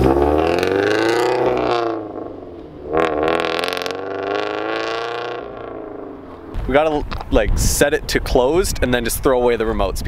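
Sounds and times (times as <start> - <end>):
car exhaust note pulling away: 0.0 - 6.9.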